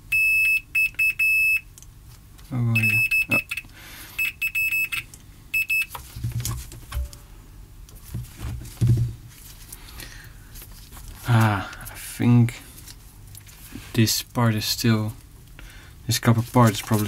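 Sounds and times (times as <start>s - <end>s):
multimeter beeps: 0.1s - 1.7s, 2.7s - 6.0s.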